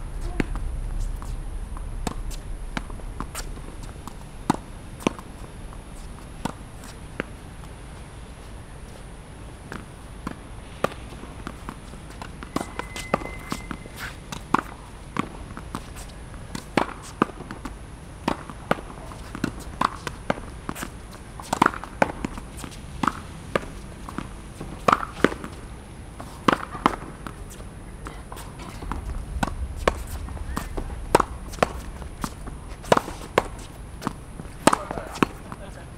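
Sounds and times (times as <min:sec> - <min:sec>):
racket hitting tennis ball: 0:03.2 - 0:07.4, 0:09.6 - 0:35.7
tennis ball hitting wall: 0:28.3 - 0:35.6.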